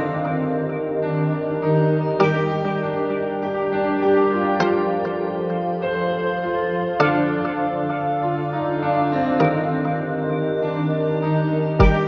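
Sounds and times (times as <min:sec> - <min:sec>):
background music with held notes: 0:00.0 - 0:12.0.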